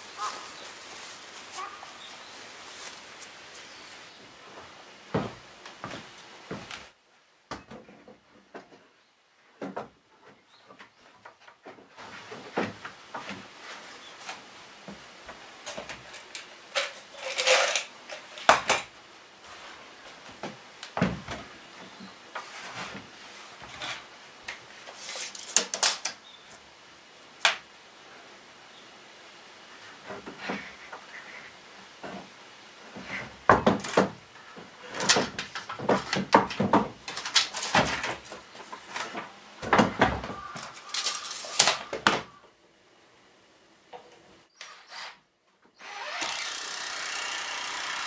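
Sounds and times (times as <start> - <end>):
wood scraping: 21.2 - 26.1, 29.9 - 42.1.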